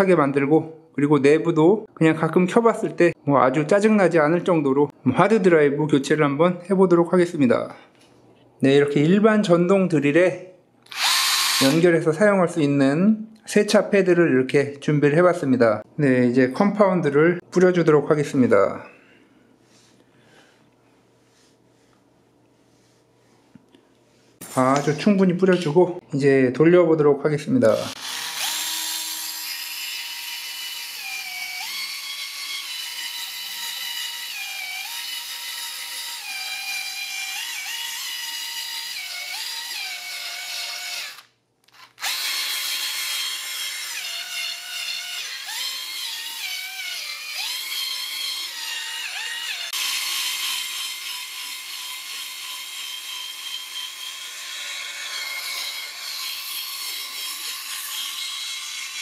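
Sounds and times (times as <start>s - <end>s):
electric drill polishing whine: 10.9s - 11.8s, 27.8s - 29.7s.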